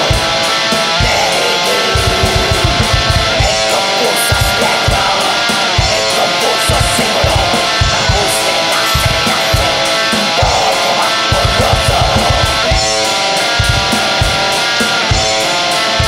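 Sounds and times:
distorted electric guitars: 0:00.0 - 0:16.0
drum kit: 0:00.0 - 0:16.0
kick drum beats: 0:02.0 - 0:03.6.

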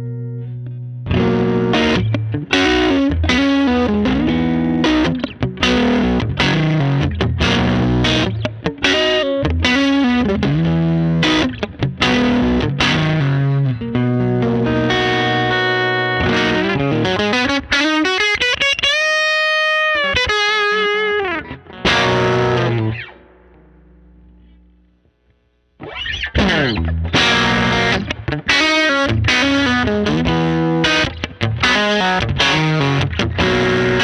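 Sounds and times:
distorted electric guitar: 0:00.0 - 0:34.0.

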